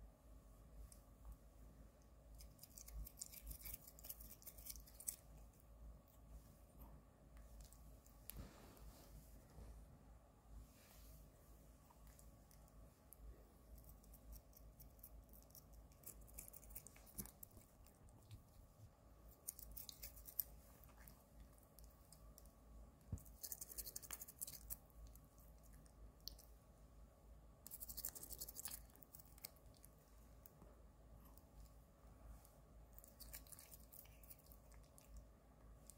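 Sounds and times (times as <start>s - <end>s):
toothbrush scratchy brushing strokes: 2.4s - 5.3s, 19.4s - 21.2s, 23.2s - 24.8s, 27.7s - 29.4s.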